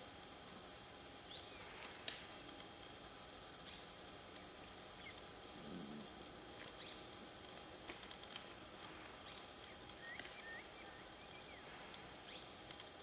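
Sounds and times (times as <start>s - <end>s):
bird chirps: 9.2s - 12.6s.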